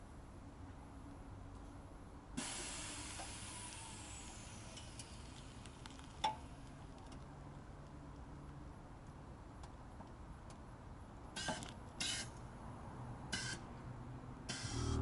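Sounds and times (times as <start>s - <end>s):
air suspension venting hiss: 2.4s - 6.2s.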